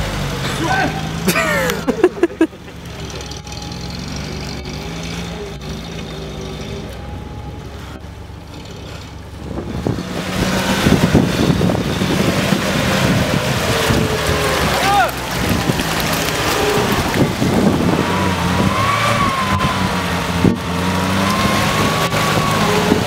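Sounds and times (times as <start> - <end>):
off-road vehicle engine: 0.0 - 23.0
mud and water churning: 8.4 - 23.0.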